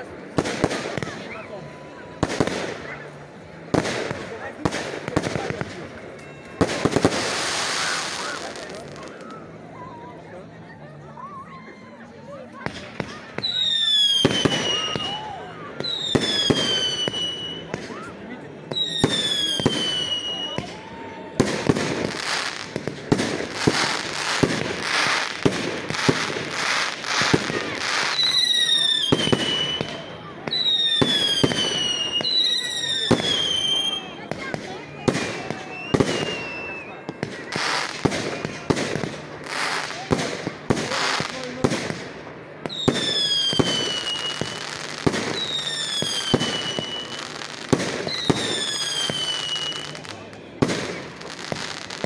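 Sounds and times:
firework bangs: 0.2s - 1.4s, 2.2s - 9.2s, 12.6s - 18.1s, 18.7s - 52.0s
falling firework whistles: 6.6s - 9.4s, 13.0s - 18.1s, 18.7s - 40.2s, 42.6s - 52.0s.

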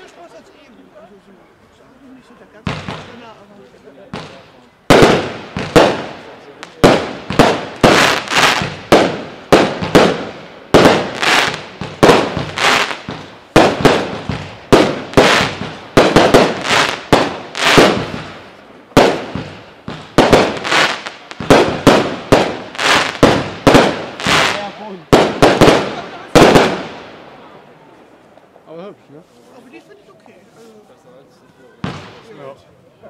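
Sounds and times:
firework bangs: 2.6s - 3.4s, 4.0s - 27.9s, 31.8s - 32.4s.

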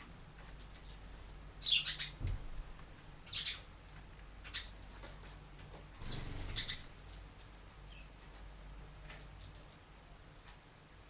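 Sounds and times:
house sparrows chirping: 1.6s - 2.2s, 3.2s - 4.8s, 6.0s - 7.2s.

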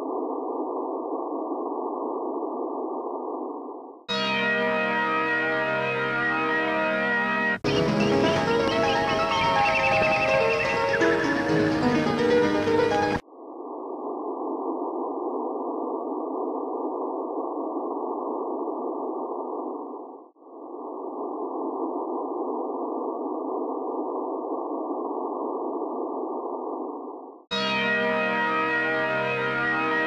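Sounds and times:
music: 4.1s - 13.2s, 27.6s - 30.0s.

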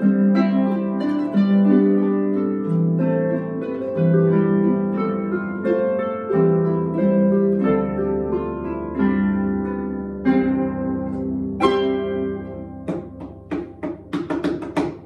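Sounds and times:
harps playing: 0.0s - 15.0s
sharp percussive strikes: 12.8s - 15.0s.

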